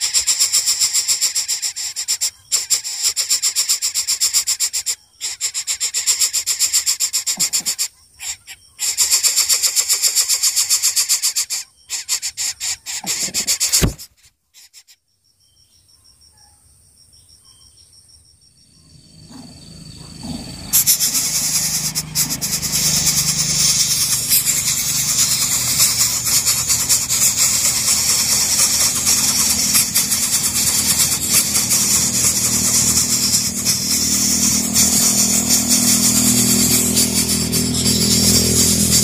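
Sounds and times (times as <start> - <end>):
nestlings begging with rasping hiss: 0.0 - 15.0, 18.6 - 39.0
low hum: 18.7 - 39.0.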